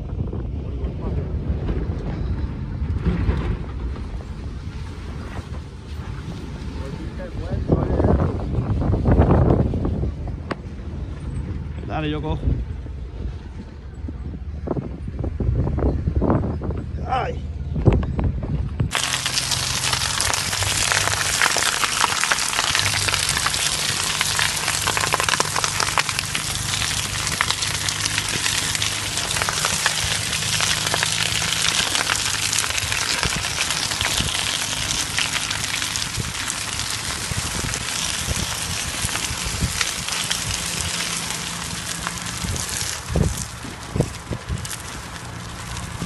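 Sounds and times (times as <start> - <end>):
engine running at low revs: 0.0 - 46.0
tyre rolling through wet mud: 18.9 - 46.0.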